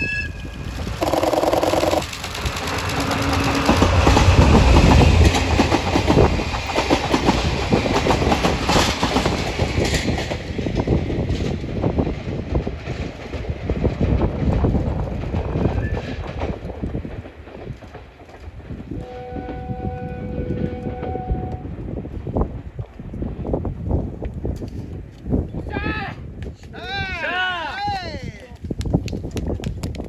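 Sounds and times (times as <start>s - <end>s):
train wheels clacking over rail joints: 0.8s - 19.0s
locomotive horn blast: 19.0s - 21.6s.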